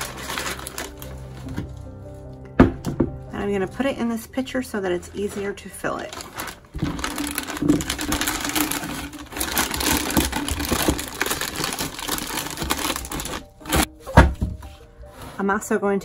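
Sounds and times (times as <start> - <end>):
plastic bag crinkling: 0.0 - 1.9, 5.2 - 14.0.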